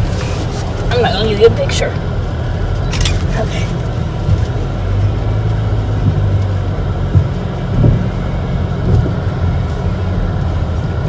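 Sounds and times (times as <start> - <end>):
car cabin low rumble: 0.0 - 11.0
tyres knocking on wooden planks: 6.0 - 6.4, 7.0 - 8.2.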